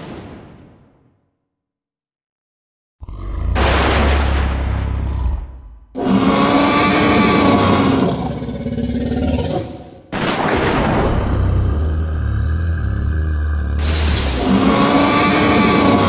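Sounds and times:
deep roar with low rumble: 0:03.0 - 0:09.6, 0:11.1 - 0:16.0
dinosaur roar: 0:03.0 - 0:10.0, 0:11.1 - 0:16.0.

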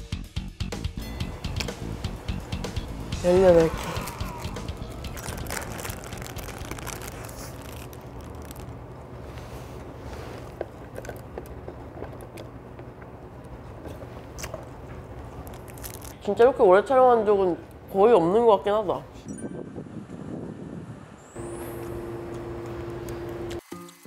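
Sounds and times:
person chewing burger: 0:03.9 - 0:08.7.

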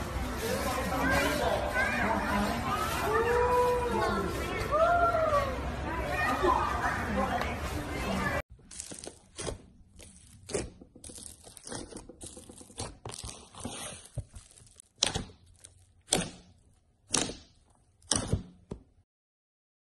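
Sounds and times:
slime crackling and crunching: 0:08.6 - 0:16.6.

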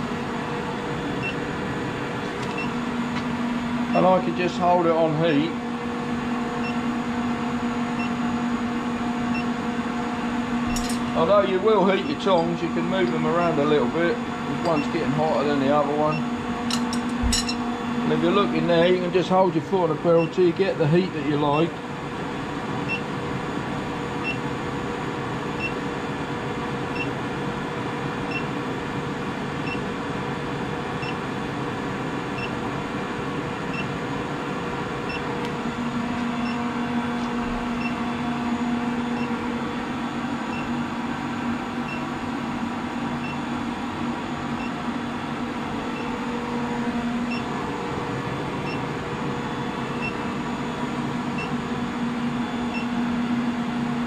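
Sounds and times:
induction heater humming: 0:00.0 - 0:54.0
lower hum: 0:32.3 - 0:54.0.

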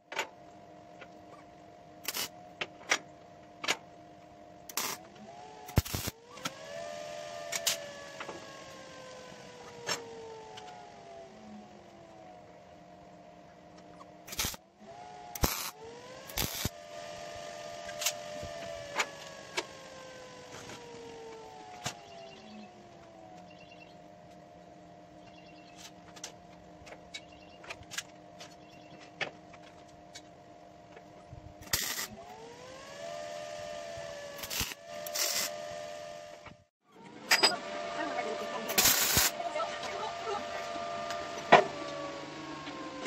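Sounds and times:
steady machine hum: 0:00.0 - 0:43.0
crackling tack welding bursts: 0:02.0 - 0:02.4, 0:04.7 - 0:06.2, 0:07.5 - 0:07.9, 0:14.2 - 0:14.6, 0:15.3 - 0:16.9, 0:31.6 - 0:32.2, 0:34.2 - 0:35.6, 0:38.7 - 0:39.4
arc welder tack welds: 0:02.0 - 0:02.5, 0:04.7 - 0:10.9, 0:14.2 - 0:22.3, 0:31.6 - 0:32.6, 0:33.5 - 0:36.6, 0:38.5 - 0:40.0.

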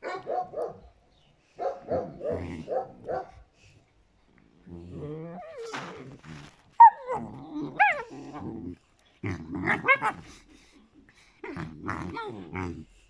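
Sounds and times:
puppies growling: 0:04.6 - 0:13.0.

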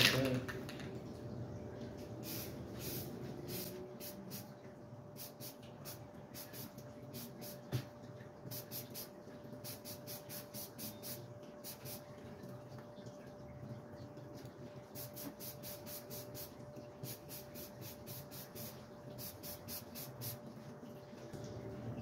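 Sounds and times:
spray can hissing bursts: 0:02.2 - 0:04.5, 0:05.2 - 0:07.7, 0:08.5 - 0:12.0, 0:15.0 - 0:20.4.

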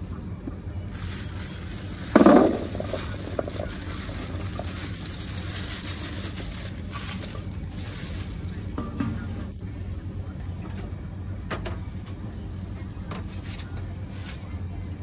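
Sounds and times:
low hum of traffic: 0:00.0 - 0:15.0
plastic bag crinkling: 0:00.8 - 0:08.8
fruits rattling onto metal tray: 0:00.9 - 0:09.2.

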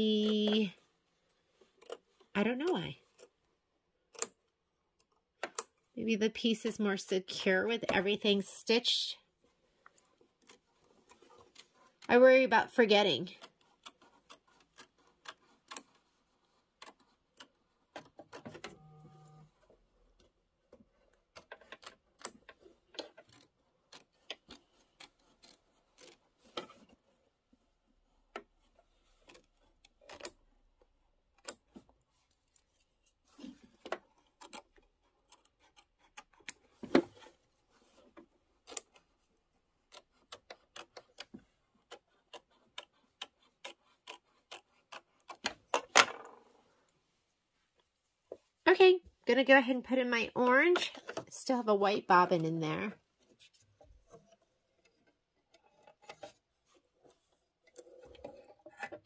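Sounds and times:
scissors snipping fabric: 0:32.4 - 0:37.3, 0:39.8 - 0:45.6.

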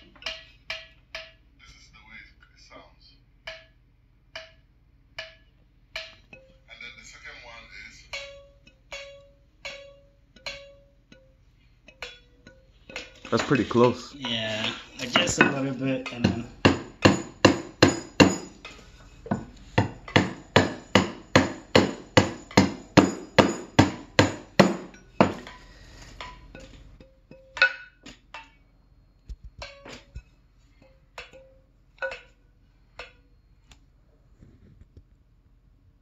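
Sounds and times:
mallet striking wooden key: 0:14.6 - 0:25.6.

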